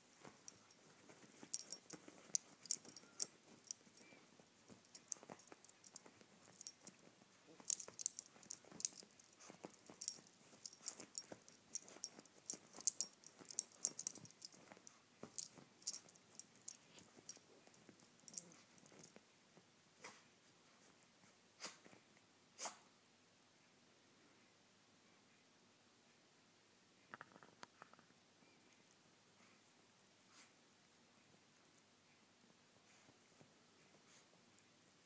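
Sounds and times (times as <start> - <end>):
collar tag jingling: 0.0 - 19.2.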